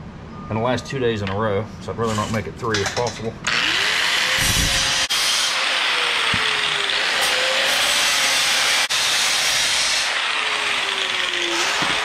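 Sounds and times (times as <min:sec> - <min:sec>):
angle grinder cutting steel mesh: 0:03.5 - 0:12.0.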